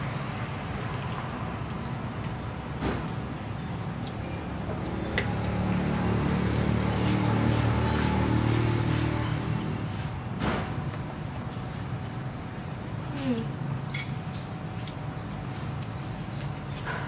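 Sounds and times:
low motor hum: 0:03.8 - 0:10.2.

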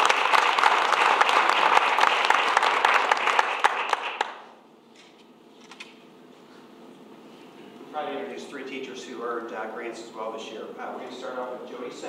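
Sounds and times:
crowd applauding: 0:00.0 - 0:04.5.

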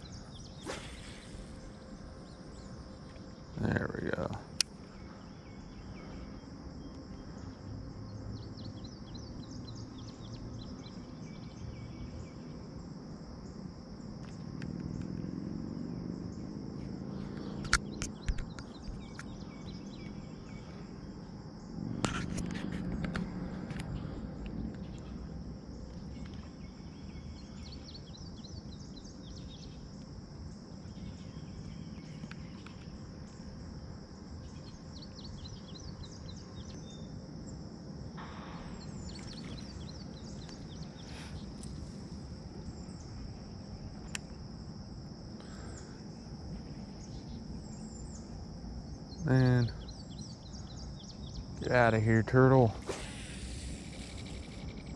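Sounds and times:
birds chirping: 0:00.0 - 0:12.6, 0:17.1 - 0:21.8, 0:38.2 - 0:44.4, 0:45.4 - 0:54.9
insect chorus: 0:00.0 - 0:54.9.

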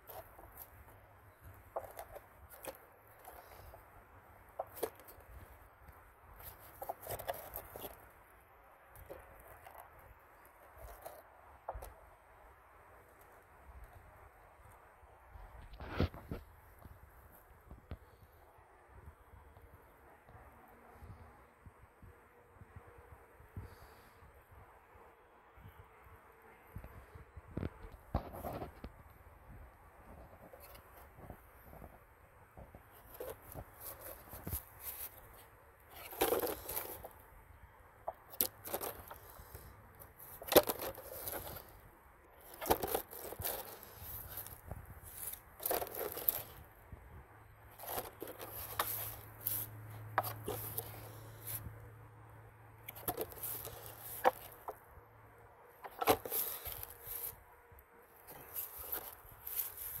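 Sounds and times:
plastic jugs crinkling and scraping: 0:00.0 - 0:12.2, 0:15.4 - 0:18.1, 0:27.5 - 0:29.1, 0:29.9 - 0:46.9, 0:47.6 - 0:51.9, 0:52.8 - 0:55.0, 0:55.6 - 0:57.5, 0:58.1 - 1:00.0.

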